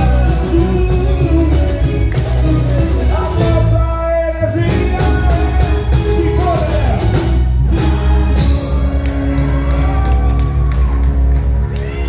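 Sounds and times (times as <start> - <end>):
lead singer singing: 0.0 - 7.2
heavy bass: 0.0 - 12.0
live band playing: 0.0 - 12.0
steady drum beats: 0.0 - 12.0.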